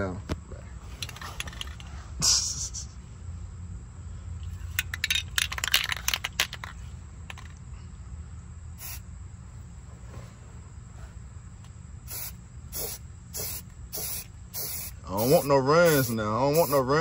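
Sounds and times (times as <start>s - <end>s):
spray can mixing ball rattling: 1.0s - 1.9s, 4.5s - 7.5s, 12.1s - 16.9s
spray can hiss: 8.8s - 9.0s, 12.0s - 16.9s.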